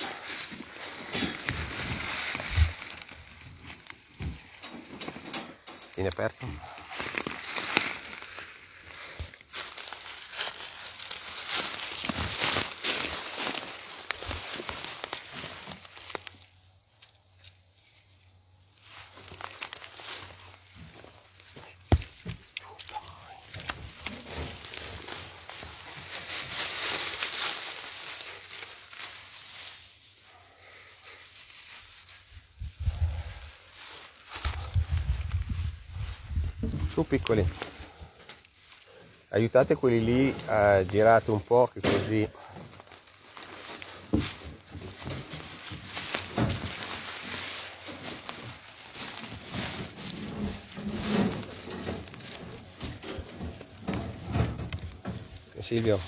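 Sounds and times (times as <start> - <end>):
dry leaves rustling and crackling: 0.0 - 56.0
wire-mesh cages shaking: 44.0 - 55.5.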